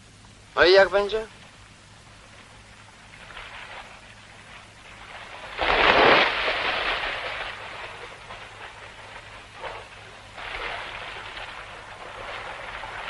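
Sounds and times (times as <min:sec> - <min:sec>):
swimming stroke splashes: 0:03.1 - 0:13.0
loud diving splash: 0:05.0 - 0:08.3.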